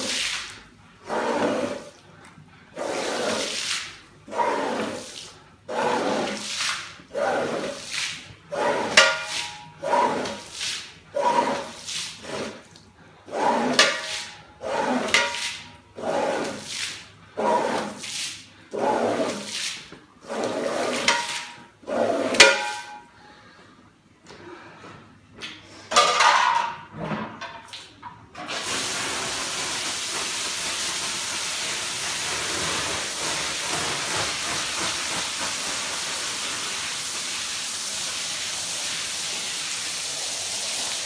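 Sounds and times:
squeegee swishing across wet rug: 0.0 - 22.9
squeegee squeak: 11.2 - 11.8.

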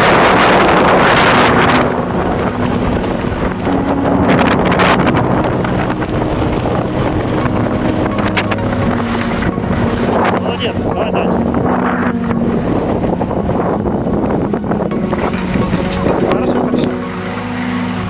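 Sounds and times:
wind buffeting microphone: 0.0 - 16.9.

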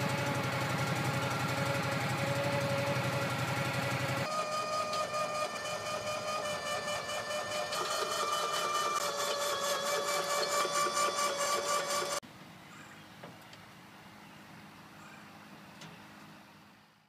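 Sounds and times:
small motor whining and pulsing: 0.0 - 12.2.

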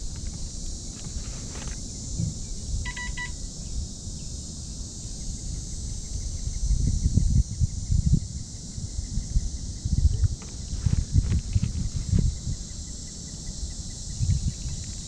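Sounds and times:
low thumps and rumbles: 2.1 - 2.8, 9.9 - 12.6
short electronic beeps: 2.9 - 3.4.

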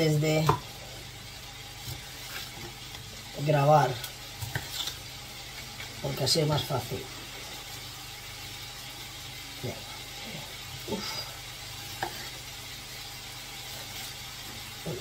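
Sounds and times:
onion sizzling in oil: 0.0 - 15.0.

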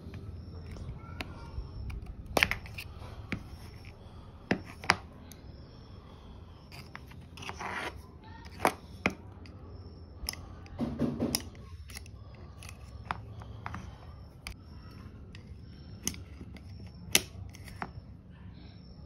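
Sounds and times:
plastic parts clicking and knocking: 0.0 - 5.4, 10.2 - 18.0.

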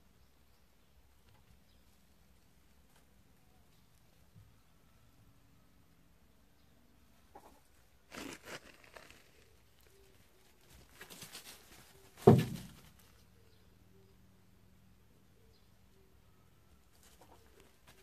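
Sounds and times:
footsteps on gravel and leaves: 8.1 - 9.6
loud dull thump: 12.2 - 12.8.

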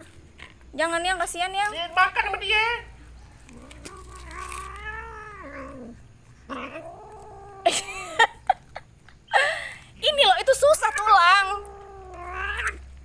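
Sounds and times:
cat yowling: 3.4 - 7.8, 10.7 - 12.9.

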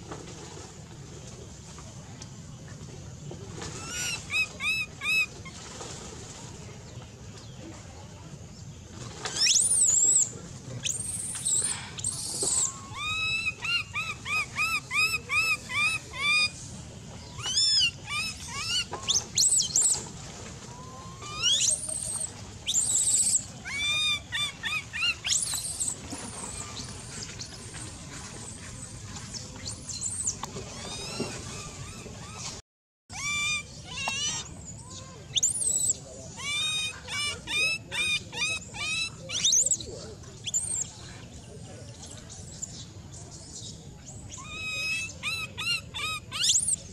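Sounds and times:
baby monkey crying: 12.2 - 16.5, 17.4 - 18.8, 22.7 - 25.8, 33.1 - 34.4, 35.5 - 39.6.

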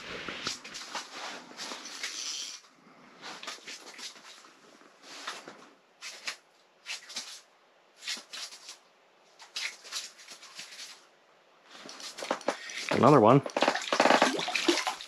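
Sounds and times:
clothing rustling against microphone: 0.0 - 2.3, 3.1 - 11.1.

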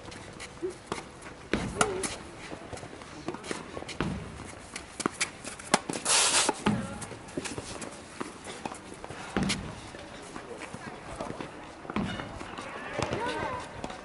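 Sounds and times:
ball bouncing: 4.0 - 4.4, 5.0 - 7.1, 9.4 - 9.7
racket hitting ball: 4.8 - 7.0
loud hissing scrape: 6.0 - 6.6.

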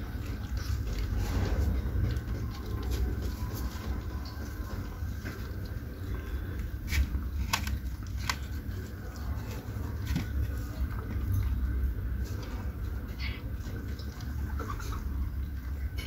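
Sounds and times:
cats chewing raw meat: 0.0 - 16.0.

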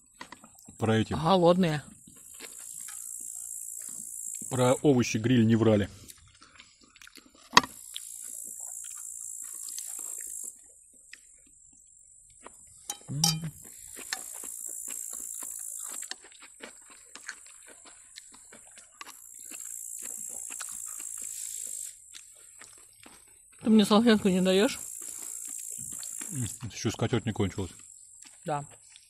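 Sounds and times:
insects buzzing: 0.8 - 5.8, 7.6 - 16.1, 19.0 - 29.0
cutlery clicking on plates: 12.9 - 13.5.

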